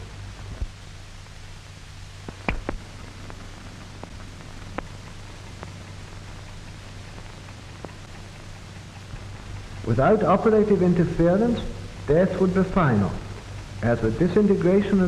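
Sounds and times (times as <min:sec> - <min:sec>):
low hum: 0:00.0 - 0:15.0
steady hiss: 0:00.0 - 0:15.0
clicks and pops: 0:02.2 - 0:03.4.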